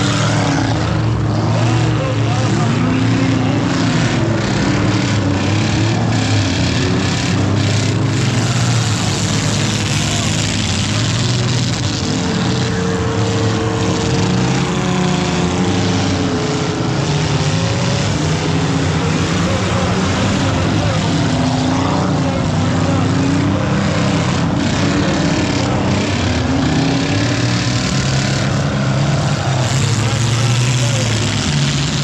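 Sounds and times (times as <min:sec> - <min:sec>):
car engines revving hard: 0:00.0 - 0:32.0.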